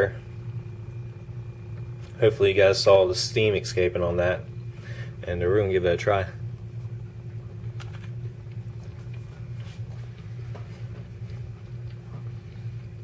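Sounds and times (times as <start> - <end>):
steady low hum: 0.0 - 13.0
chewing: 6.8 - 13.0.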